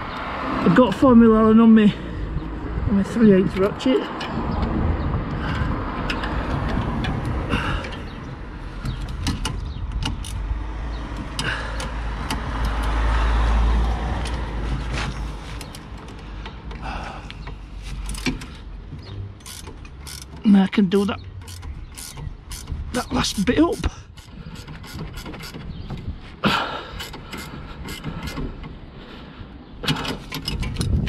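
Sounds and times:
road traffic rumble: 0:00.0 - 0:31.0
spanner and ratchet clicks: 0:08.8 - 0:10.5, 0:19.4 - 0:20.5, 0:21.4 - 0:22.8, 0:23.7 - 0:25.7.

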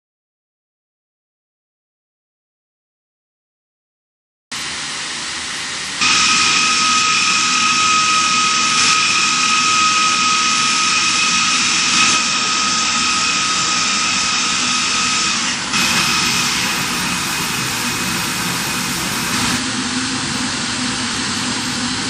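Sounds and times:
loud even hiss: 0:04.6 - 0:20.4
machinery high whine: 0:04.6 - 0:22.0.

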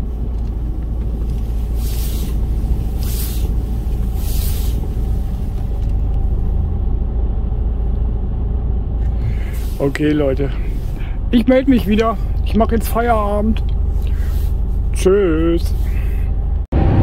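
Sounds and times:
diesel engines rumbling: 0:00.0 - 0:17.0
short hisses: 0:01.7 - 0:05.4, 0:09.2 - 0:09.9, 0:13.9 - 0:14.8.

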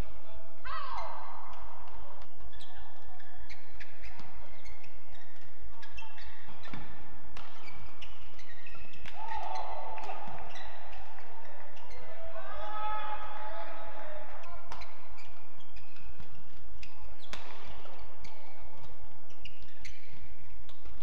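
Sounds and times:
person shouting: 0:00.6 - 0:01.3
shoes squeaking on court: 0:00.9 - 0:21.0
rackets hitting shuttlecock: 0:01.1 - 0:12.1, 0:13.2 - 0:21.0.

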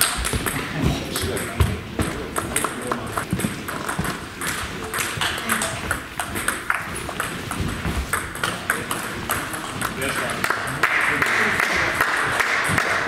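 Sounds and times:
ball bouncing on table: 0:00.0 - 0:10.4
ball clicking off bats: 0:00.0 - 0:10.9.

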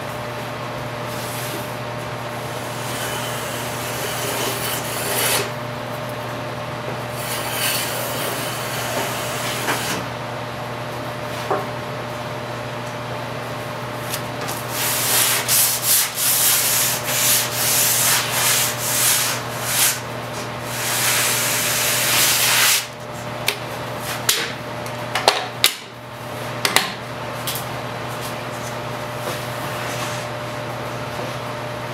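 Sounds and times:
sandpaper rubbing wood: 0:14.7 - 0:20.0, 0:20.7 - 0:22.9.

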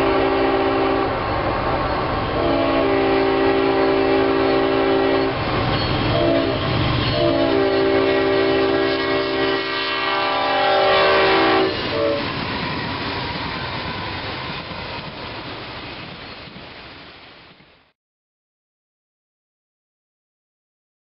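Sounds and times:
train air horn chord: 0:00.0 - 0:01.2, 0:02.4 - 0:05.4, 0:06.1 - 0:12.3
passing train rumble: 0:00.0 - 0:17.9.

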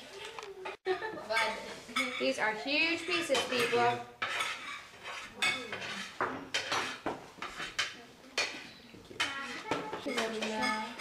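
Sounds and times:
cutlery clinking on plates: 0:00.6 - 0:02.4, 0:03.0 - 0:11.0.

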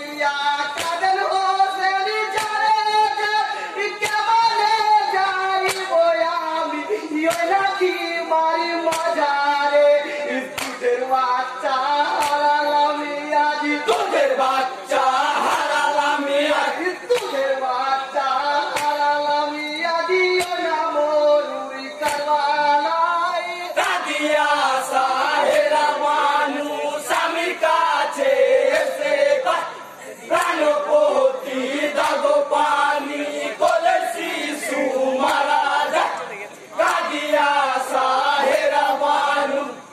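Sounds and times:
men chanting together: 0:00.0 - 0:39.9
men singing a lament: 0:00.0 - 0:39.9
hand clap: 0:00.7 - 0:01.2, 0:02.3 - 0:02.8, 0:04.0 - 0:04.7, 0:05.6 - 0:06.0, 0:07.2 - 0:07.9, 0:08.8 - 0:09.4, 0:10.5 - 0:10.9, 0:12.2 - 0:12.6, 0:17.1 - 0:17.4, 0:18.7 - 0:19.1, 0:20.3 - 0:20.7, 0:22.0 - 0:22.4, 0:28.2 - 0:29.0, 0:30.3 - 0:30.7, 0:31.9 - 0:32.3, 0:33.6 - 0:34.3, 0:35.2 - 0:37.2.

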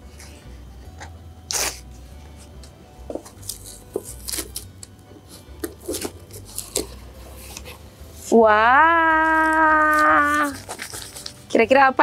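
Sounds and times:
cardboard box being opened: 0:03.4 - 0:04.6, 0:05.6 - 0:07.8, 0:09.3 - 0:11.4.

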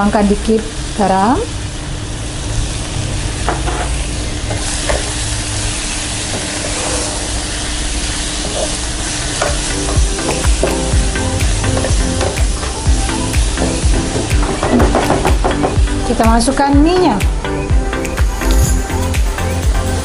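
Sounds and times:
food sizzling in a hot pan: 0:00.0 - 0:15.3.

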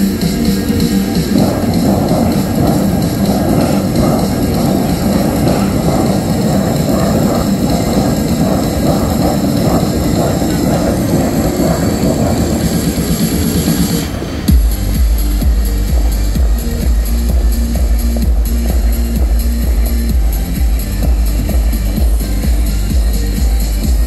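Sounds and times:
fountain water spraying: 0:00.0 - 0:24.0.

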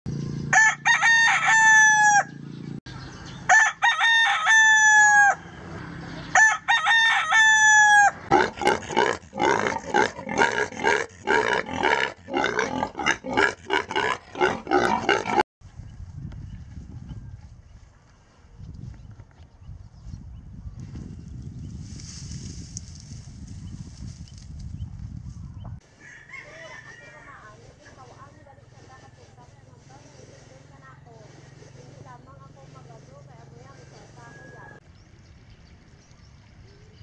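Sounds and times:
rooster crowing: 0:00.5 - 0:02.4, 0:03.5 - 0:05.6, 0:06.3 - 0:08.3, 0:25.9 - 0:27.6, 0:33.8 - 0:34.8
pig squealing grunts: 0:08.3 - 0:15.4.

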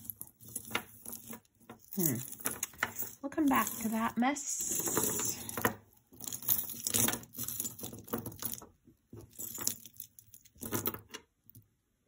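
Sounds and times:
rustling: 0:00.0 - 0:11.0
jewelry beads clinking and rattling: 0:00.0 - 0:11.2.

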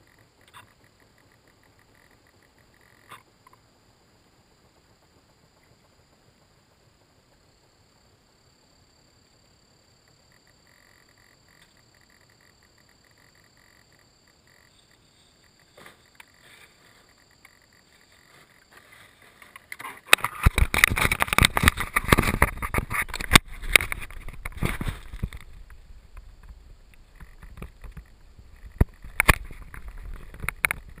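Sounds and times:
sharp clicks: 0:00.0 - 0:03.6, 0:19.4 - 0:31.0
faint frog calls: 0:00.0 - 0:31.0
hand rubbing and scraping: 0:14.9 - 0:17.2, 0:17.8 - 0:25.6.

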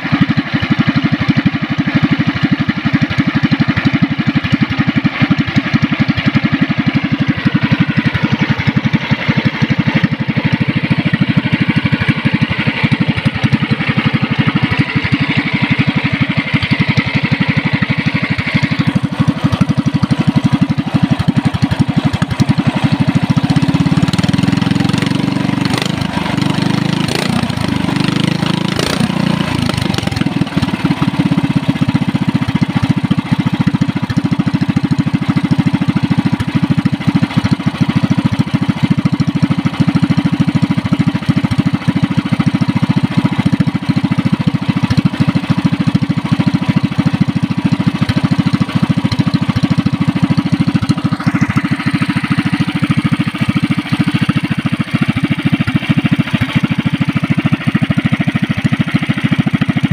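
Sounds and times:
single-cylinder engine running: 0:00.0 - 0:59.9.

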